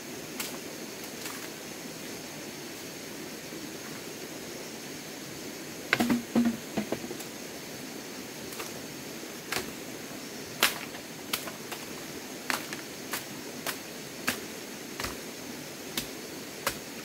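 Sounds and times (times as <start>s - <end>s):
steady hiss: 0.0s - 17.0s
bamboo poles knocking: 5.9s - 7.2s.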